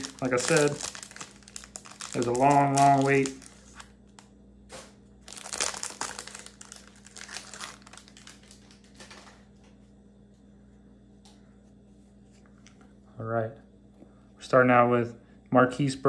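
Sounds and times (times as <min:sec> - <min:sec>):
card wrapper crinkling: 0:00.0 - 0:09.4.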